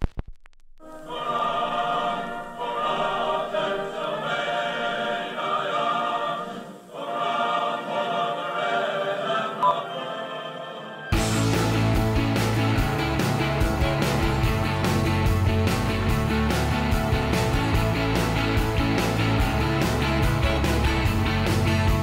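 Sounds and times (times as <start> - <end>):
choir singing: 0.8 - 14.5.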